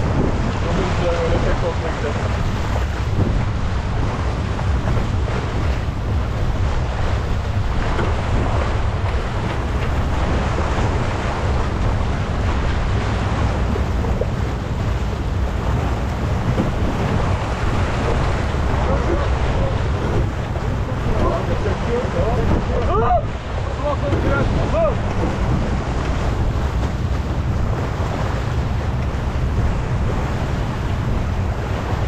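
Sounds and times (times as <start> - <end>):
water rushing along hull: 0.0 - 32.0
wind buffeting microphone: 0.0 - 32.0.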